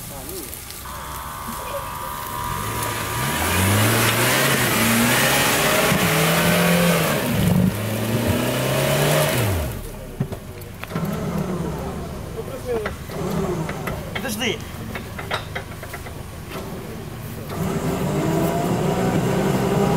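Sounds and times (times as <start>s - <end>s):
engine revving hard: 0.9s - 10.0s, 10.9s - 12.5s, 13.1s - 13.9s, 17.4s - 19.9s.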